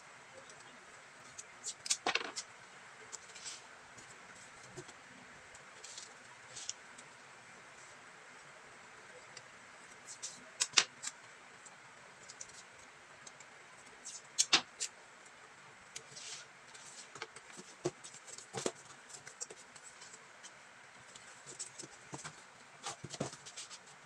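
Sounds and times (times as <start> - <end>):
cardboard rustling: 21.2 - 23.9.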